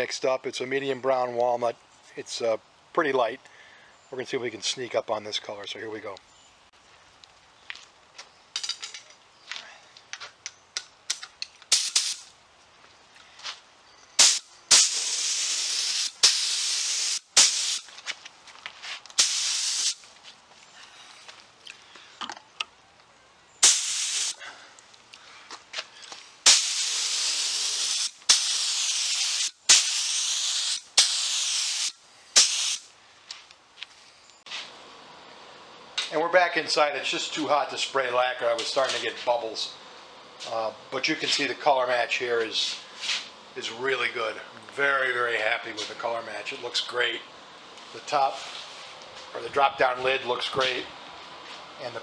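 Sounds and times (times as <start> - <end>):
spray gun hissing: 11.7 - 12.3, 14.2 - 17.9, 19.2 - 20.0, 23.6 - 24.4, 26.4 - 32.9.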